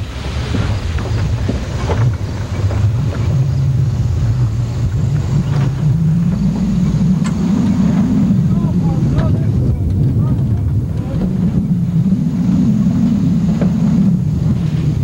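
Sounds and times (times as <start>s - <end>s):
truck engine running: 0.0s - 15.0s
knocks and rattles from bumps: 4.8s - 12.0s.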